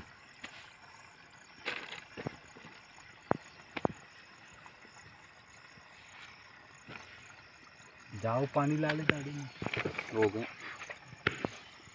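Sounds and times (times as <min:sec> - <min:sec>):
water glugging from plastic bottle: 0:01.4 - 0:04.1, 0:08.7 - 0:11.8.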